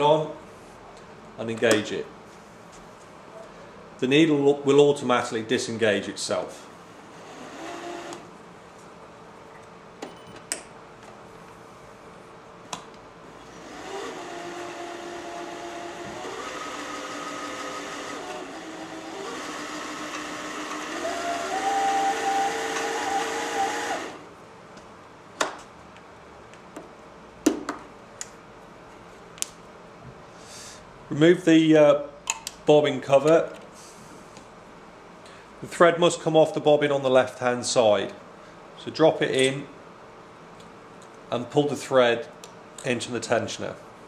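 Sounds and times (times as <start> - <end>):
sewing machine motor running: 6.9 - 8.3, 13.3 - 24.3.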